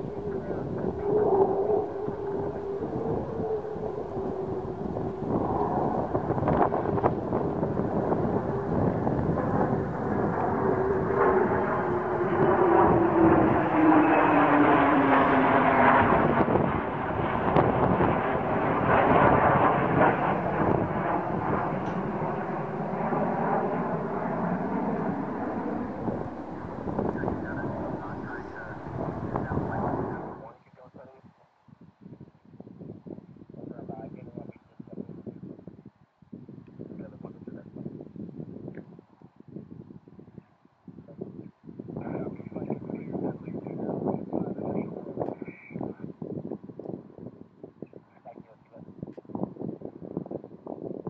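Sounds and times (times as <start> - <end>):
fighter jets flying overhead: 0.0 - 30.6.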